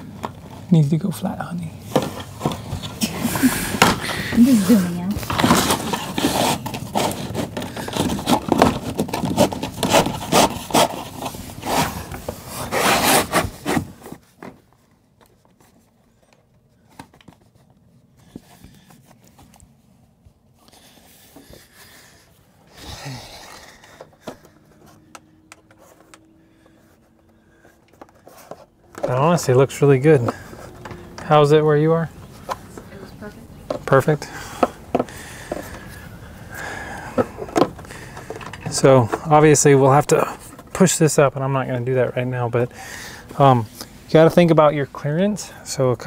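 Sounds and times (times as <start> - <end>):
plastic scraping along wood: 3.8 - 14.6.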